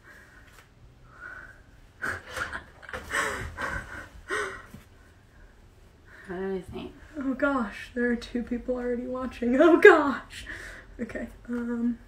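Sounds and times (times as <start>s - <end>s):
woman laughing breathily: 2.0s - 4.8s.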